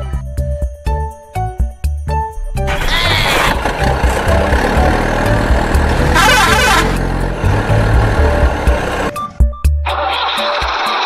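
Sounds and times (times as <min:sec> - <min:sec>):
heavy truck engine running: 0:02.4 - 0:09.5.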